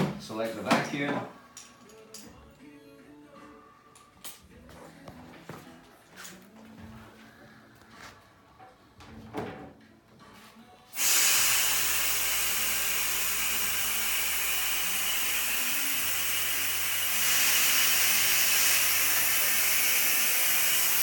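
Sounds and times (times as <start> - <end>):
loud hiss of air: 11.0 - 21.0.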